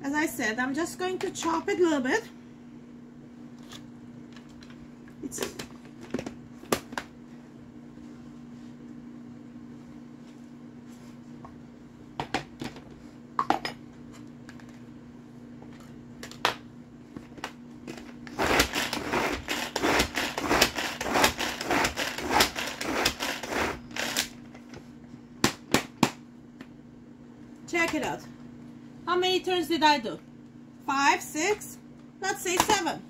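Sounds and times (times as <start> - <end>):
steady low hum: 0.0 - 33.0
pull-cord chopper whirring: 18.3 - 24.3.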